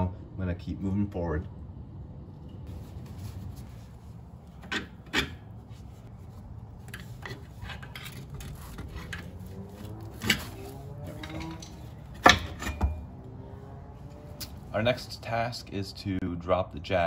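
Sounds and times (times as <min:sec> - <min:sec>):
wrench and bolt clinking: 0:10.2 - 0:13.1.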